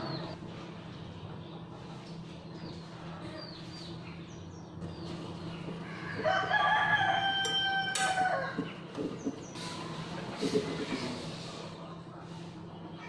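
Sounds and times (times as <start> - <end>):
rooster crowing: 5.8 - 8.7.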